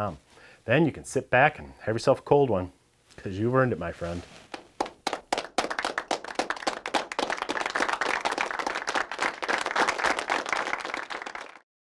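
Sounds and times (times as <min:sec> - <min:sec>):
crowd applauding: 0:04.8 - 0:11.7.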